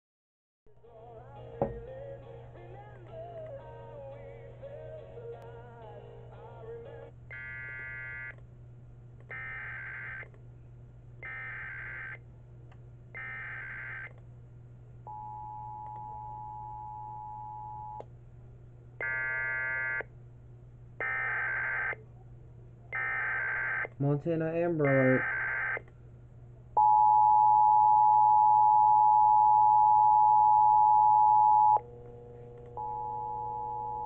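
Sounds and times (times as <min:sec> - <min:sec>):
song playing: 0:00.8 - 0:07.1.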